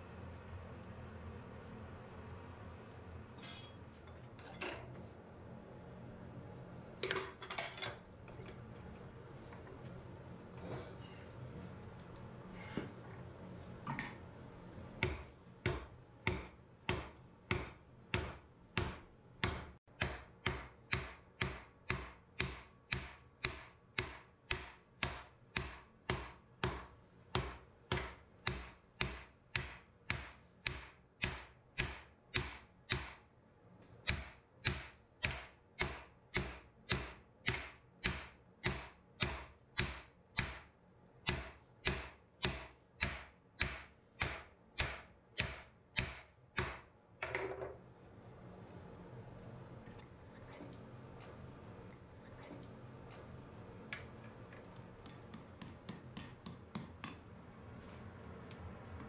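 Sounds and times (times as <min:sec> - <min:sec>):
hammer striking hot steel: 0:03.4 - 0:03.8, 0:15.0 - 0:33.2, 0:34.1 - 0:40.7, 0:41.3 - 0:46.9.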